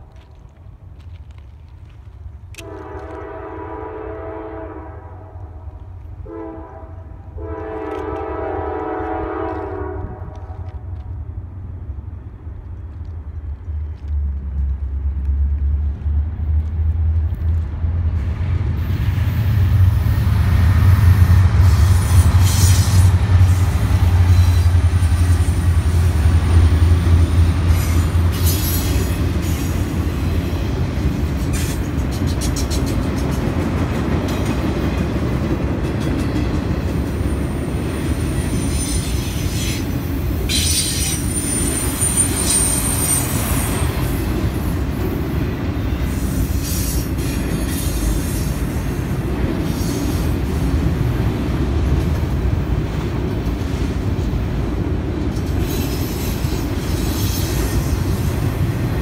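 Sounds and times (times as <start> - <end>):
diesel locomotive engine rumble: 0.0 - 59.0
wheels clicking over rail joints: 22.2 - 59.0
high wheel squeal: 38.1 - 44.1.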